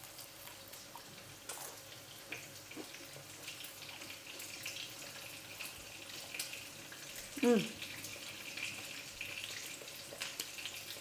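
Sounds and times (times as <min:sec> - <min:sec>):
crunchy chicken being chewed: 0:00.0 - 0:06.6
chicken frying in oil: 0:00.0 - 0:11.0.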